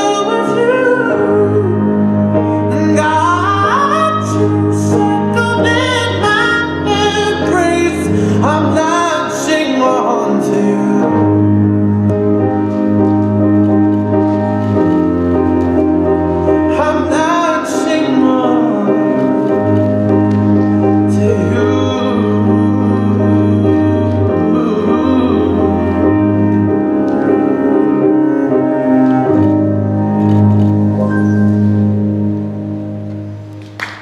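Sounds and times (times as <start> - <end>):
person singing: 0.0 - 11.6, 16.6 - 19.8, 20.8 - 29.6
slow song with keyboard chords: 0.0 - 34.0.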